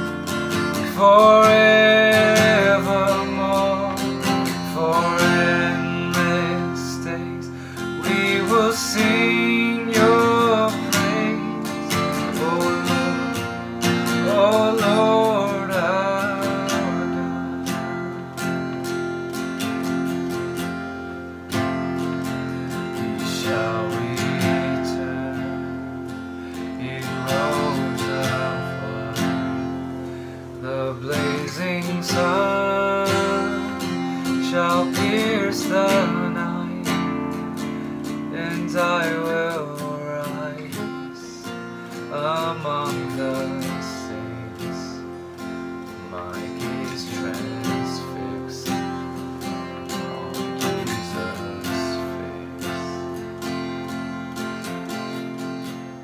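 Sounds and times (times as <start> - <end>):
acoustic guitar strumming: 0.0 - 56.0.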